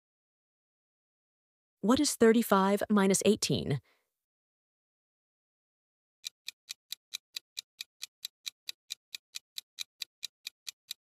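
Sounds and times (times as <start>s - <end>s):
clock ticking: 6.2s - 11.0s.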